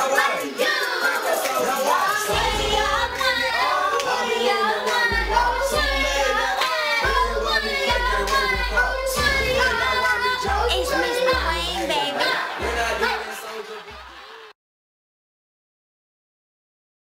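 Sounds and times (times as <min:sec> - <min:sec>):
sung vocals: 0:00.0 - 0:14.5
deep repeating bass line: 0:02.3 - 0:04.2, 0:05.1 - 0:12.0.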